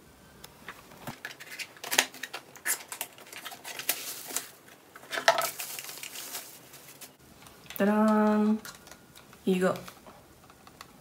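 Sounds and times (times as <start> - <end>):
clicks and scrapes: 1.1 - 7.0
crinkling plastic packaging: 1.1 - 10.9.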